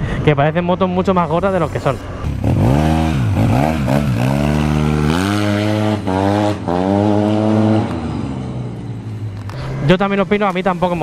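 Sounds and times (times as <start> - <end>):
scooter engine revving: 2.2 - 9.0.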